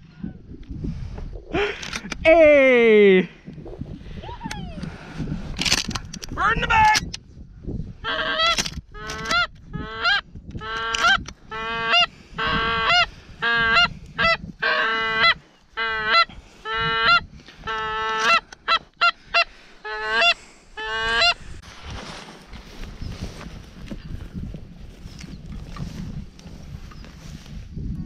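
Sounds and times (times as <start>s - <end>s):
goose call honks: 8.1s - 21.4s.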